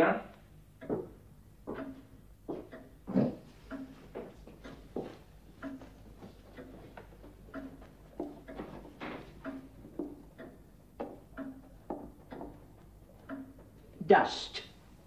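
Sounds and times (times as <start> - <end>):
footsteps on hard floor: 0.9 - 2.8, 3.8 - 10.2.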